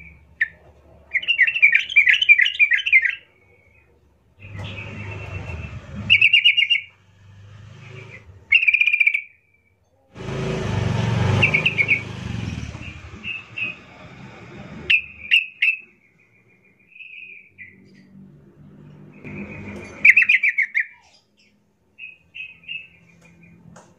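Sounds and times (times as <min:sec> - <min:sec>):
bird chirping and trilling: 0:00.4 - 0:03.2, 0:04.4 - 0:07.0, 0:08.0 - 0:09.3, 0:11.3 - 0:13.9.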